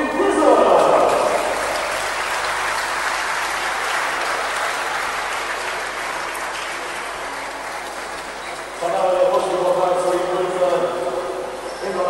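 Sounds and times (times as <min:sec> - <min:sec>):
people applauding: 0:00.0 - 0:12.0.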